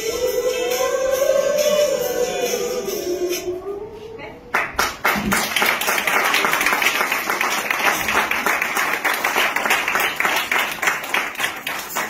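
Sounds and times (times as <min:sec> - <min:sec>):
audience applause: 0:04.6 - 0:12.0.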